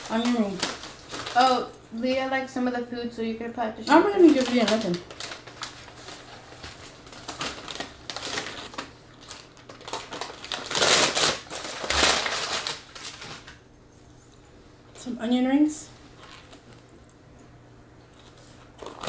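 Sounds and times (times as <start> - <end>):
paper bag rustling: 0.0 - 1.8, 3.9 - 13.6.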